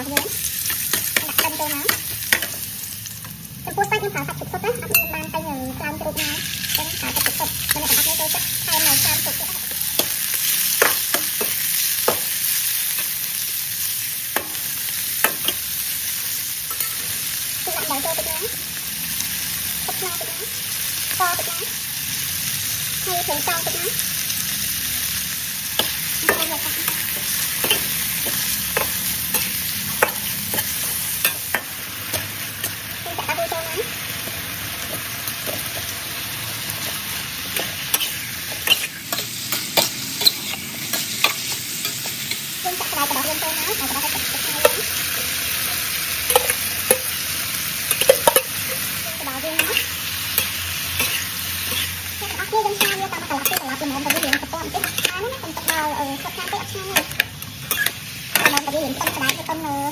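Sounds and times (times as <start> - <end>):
food sizzling in a wok: 0.0 - 59.9
metal spatulas scraping a pan: 36.8 - 42.4, 49.5 - 59.6.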